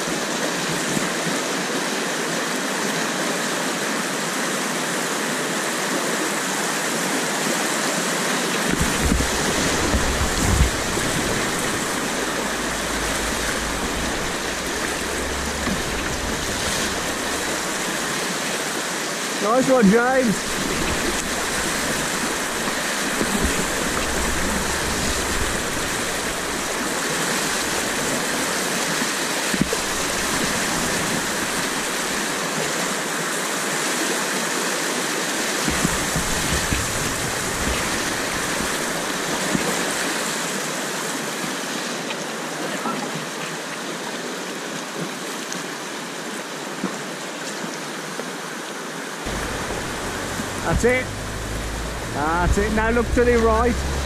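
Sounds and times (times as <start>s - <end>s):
river rapid rushing: 0.0s - 54.0s
water splashing over bow: 8.3s - 34.4s, 35.2s - 41.9s, 49.3s - 54.0s
paddle stroke splashes: 8.6s - 32.8s, 35.6s - 40.4s, 49.3s - 54.0s.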